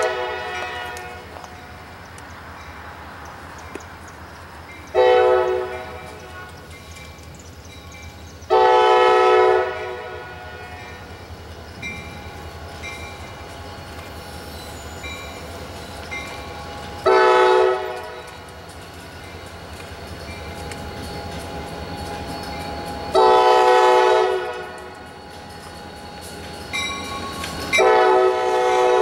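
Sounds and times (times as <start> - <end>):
locomotive air horn blasts: 0.0 - 1.4, 5.0 - 6.6, 8.5 - 11.1, 17.0 - 18.2, 23.1 - 24.9, 27.8 - 29.0
diesel locomotive rumble: 0.0 - 29.0.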